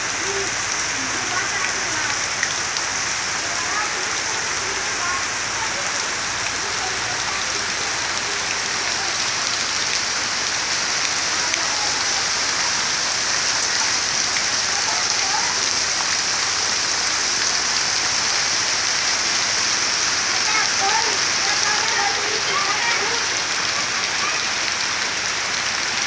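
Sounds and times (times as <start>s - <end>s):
heavy rain pattering on water: 0.0s - 26.0s.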